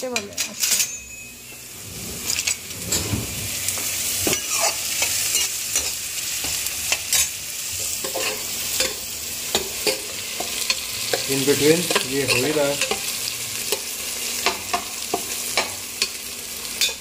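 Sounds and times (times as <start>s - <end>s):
spoon scraping a pan: 0.1s - 17.0s
onions sizzling in oil: 1.2s - 17.0s.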